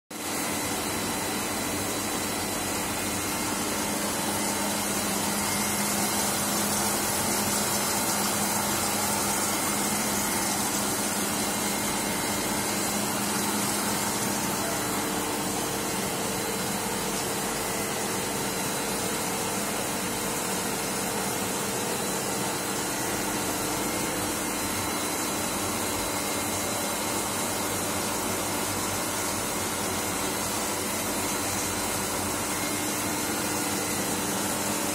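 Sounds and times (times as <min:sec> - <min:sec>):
machine hum: 0:00.2 - 0:27.8.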